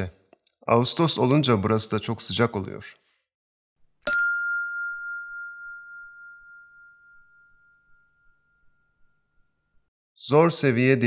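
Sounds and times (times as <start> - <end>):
bell-like ding: 4.1 - 9.8.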